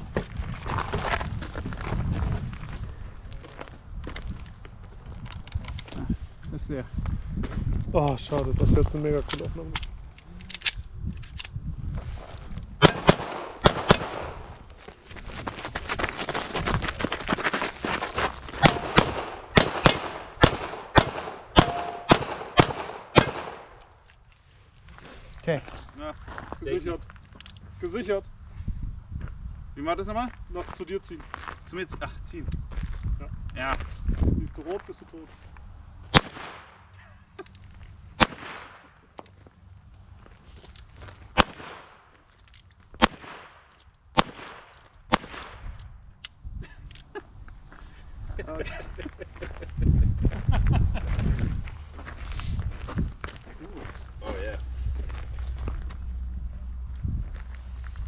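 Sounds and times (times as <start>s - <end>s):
pistol shots: 12.8s - 14.4s, 18.6s - 23.8s, 36.1s - 36.8s, 38.2s - 38.8s, 41.4s - 42.0s, 43.0s - 43.6s, 44.2s - 45.6s
steel target ringing: 21.5s - 22.3s.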